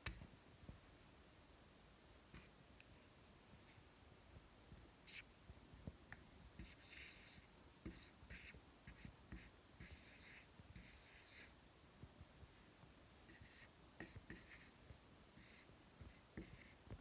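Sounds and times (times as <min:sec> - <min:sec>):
marker scratching on whiteboard: 0:05.1 - 0:05.3, 0:06.6 - 0:11.6, 0:13.2 - 0:17.0.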